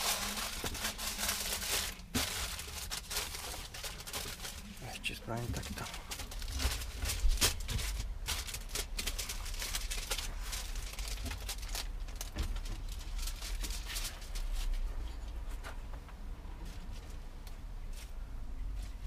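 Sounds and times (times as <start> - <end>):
aluminium foil crinkling: 0.0 - 14.9.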